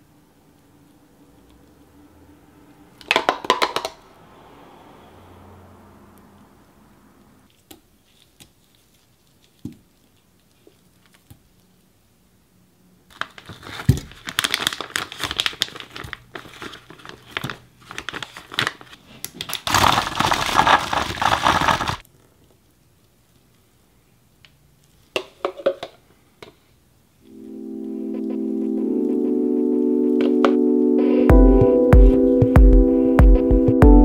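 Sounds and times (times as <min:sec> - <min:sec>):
plastic crinkling handling sounds: 0:07.5 - 0:11.7, 0:13.1 - 0:23.6.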